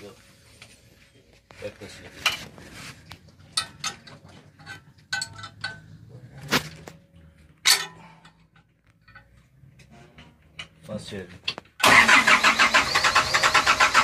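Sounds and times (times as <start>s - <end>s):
metal tools clinking and tapping: 3.4s - 6.1s, 6.8s - 11.8s.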